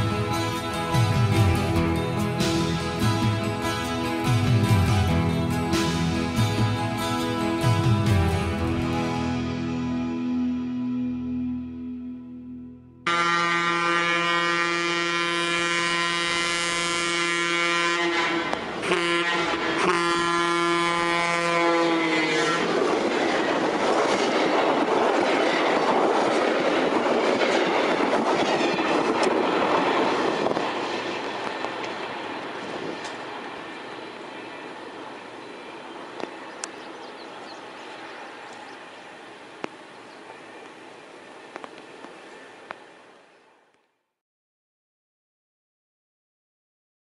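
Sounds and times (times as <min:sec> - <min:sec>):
train rushing past: 0:00.0 - 0:10.8, 0:13.1 - 0:43.7
locomotive air horn blasts: 0:13.0 - 0:22.6.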